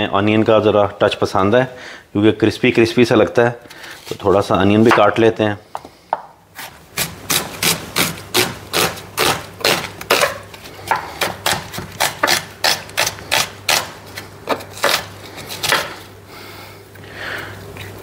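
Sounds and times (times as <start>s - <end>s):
knife chopping on cutting board: 7.0s - 16.0s.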